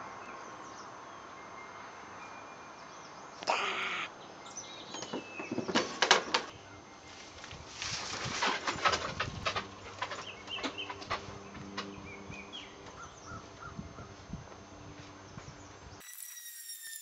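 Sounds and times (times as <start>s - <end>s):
rustling against microphone: 7.1s - 11.7s.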